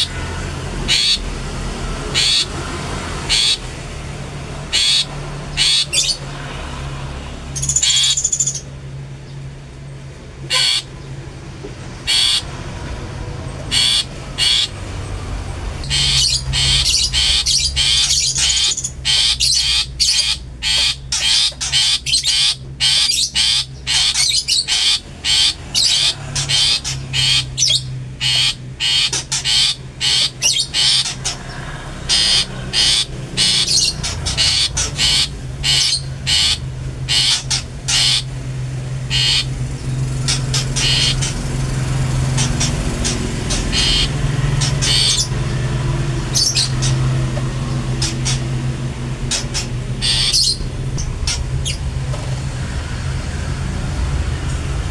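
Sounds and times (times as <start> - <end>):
bird calling sharp high calls: 0.8 - 1.3, 2.1 - 2.6, 3.2 - 3.7, 4.7 - 6.3, 7.6 - 8.8, 10.4 - 11.1, 12.0 - 12.5, 13.6 - 14.8, 15.8 - 48.6, 49.3 - 51.9.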